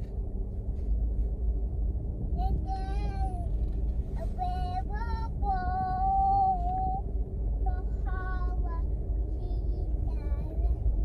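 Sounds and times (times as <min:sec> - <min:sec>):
car engine and road noise: 0:00.0 - 0:11.0
child singing: 0:04.2 - 0:07.0, 0:07.6 - 0:08.8, 0:09.4 - 0:11.0.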